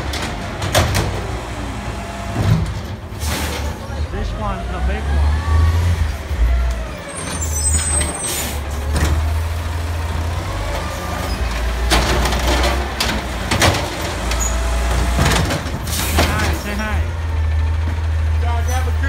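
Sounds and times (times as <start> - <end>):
garbage truck diesel rumble: 0.0 - 19.0
clunks of cart and hydraulic arm: 2.3 - 3.8, 11.2 - 16.6.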